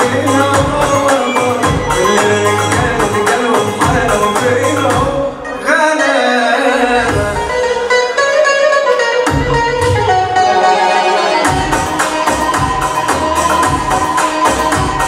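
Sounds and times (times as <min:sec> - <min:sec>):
dance song with drum and bass beat: 0:00.0 - 0:05.5, 0:06.9 - 0:08.0, 0:10.8 - 0:15.0.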